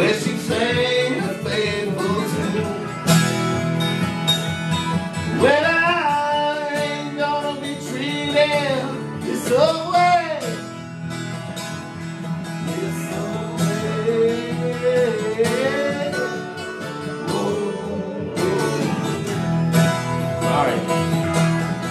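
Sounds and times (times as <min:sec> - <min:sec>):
man singing: 0:00.0 - 0:03.1, 0:05.3 - 0:10.7, 0:12.6 - 0:19.4, 0:20.3 - 0:21.0
strummed acoustic guitar: 0:00.0 - 0:21.9.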